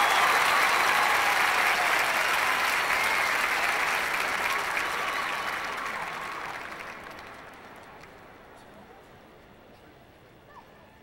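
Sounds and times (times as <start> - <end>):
stadium crowd applauding: 0.0 - 8.5.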